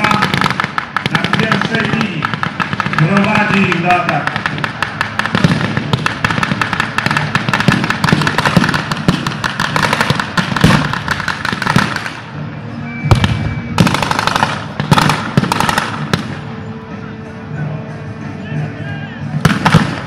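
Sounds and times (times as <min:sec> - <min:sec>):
rapid gunfire: 0:00.0 - 0:12.2, 0:13.2 - 0:16.3, 0:19.4 - 0:20.0
background music: 0:00.0 - 0:20.0.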